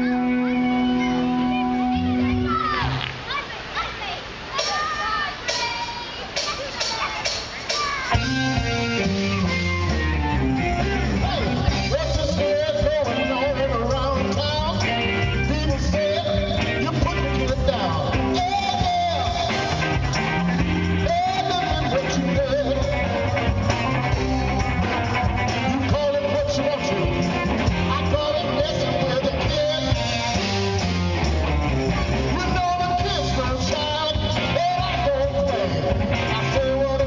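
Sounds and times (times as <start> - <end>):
lead melody with bending notes: 0.0 - 3.0, 6.4 - 37.0
bass: 0.0 - 3.3, 6.4 - 37.0
electric guitar: 0.0 - 3.3, 7.8 - 37.0
drums: 0.0 - 37.0.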